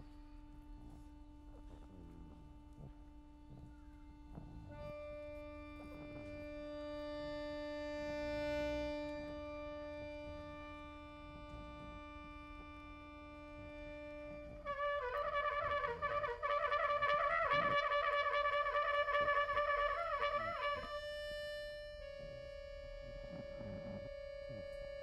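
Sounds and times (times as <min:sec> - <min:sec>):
trumpet wavering line: 0:03.5 - 0:25.0
accordion holding chord: 0:04.2 - 0:17.8.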